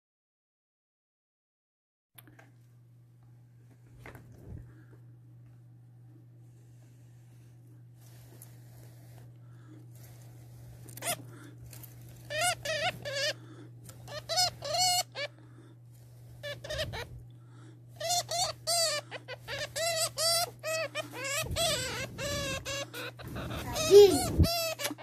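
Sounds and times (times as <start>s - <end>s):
low steady hum: 2.2s - 25.0s
hamster squeaking: 11.0s - 11.2s, 12.2s - 15.3s, 16.4s - 17.2s, 18.0s - 25.0s.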